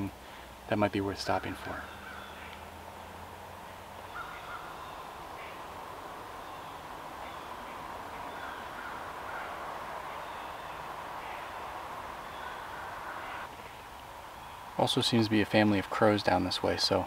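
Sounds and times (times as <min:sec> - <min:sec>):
woodland ambience: 0:00.0 - 0:17.0
distant crows cawing: 0:01.2 - 0:14.8.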